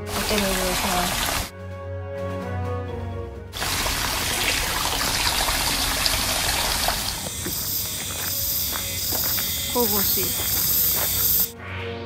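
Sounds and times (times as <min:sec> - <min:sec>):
water splashing and trickling: 0:00.0 - 0:01.5, 0:03.6 - 0:07.5.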